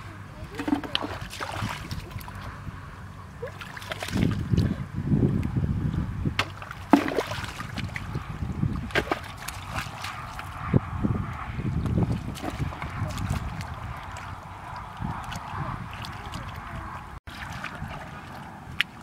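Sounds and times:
sloshing through muddy water: 0:00.0 - 0:04.9, 0:05.8 - 0:10.7, 0:12.0 - 0:19.0
sharp water splashes: 0:00.5 - 0:02.5, 0:03.4 - 0:04.7, 0:06.3 - 0:10.6, 0:12.1 - 0:19.0.

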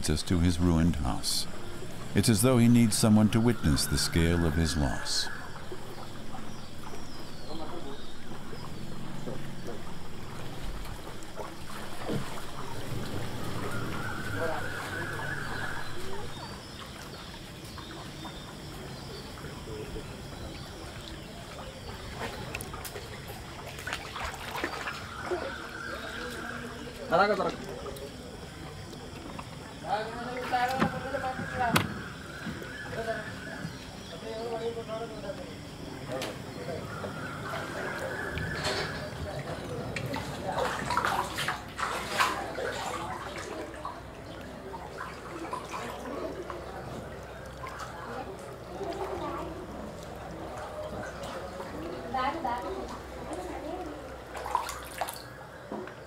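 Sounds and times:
faint bird calls: 0:00.0 - 0:41.4
water sloshing around wading legs: 0:05.2 - 0:56.0
small splashes: 0:05.3 - 0:34.3, 0:35.4 - 0:56.0.

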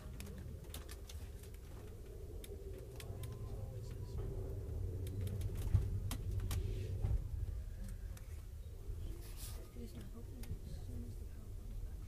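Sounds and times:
train car rumble: 0:00.0 - 0:09.9
light clicks and creaks: 0:00.0 - 0:11.1.

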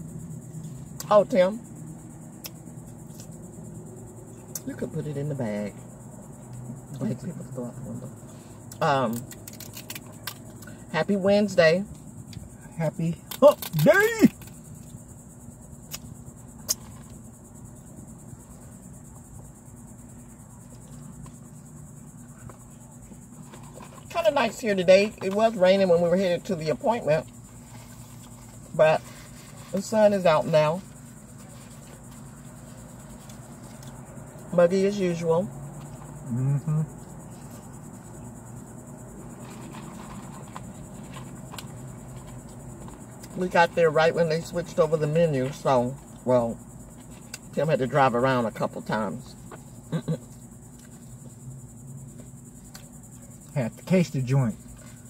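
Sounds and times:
low steady hum: 0:00.0 - 0:55.0
high-pitched insect drone: 0:10.5 - 0:55.0
murmured voice: 0:36.3 - 0:36.9.

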